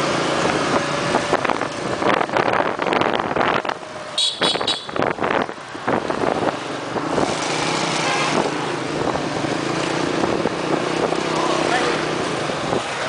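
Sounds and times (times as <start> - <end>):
street traffic: 0.0 - 13.0
wind buffeting microphone: 0.3 - 7.6.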